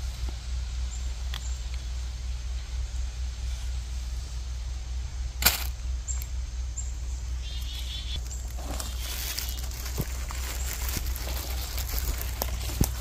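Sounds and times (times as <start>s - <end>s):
steady low rumble: 0.0s - 13.0s
sharp crack: 5.4s - 5.8s
high bird chirps: 6.1s - 9.7s
footsteps on dry pine needles: 7.4s - 13.0s.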